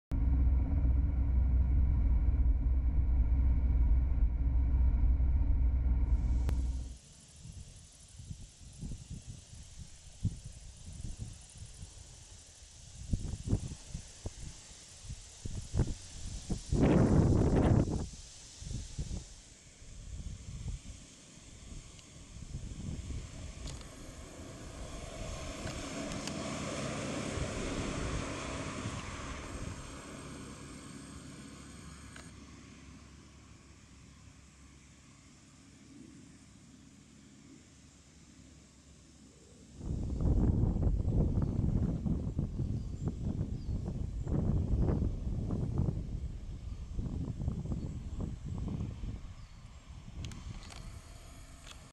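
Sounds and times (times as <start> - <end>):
car engine and road noise: 0.0 - 7.0, 22.2 - 35.6.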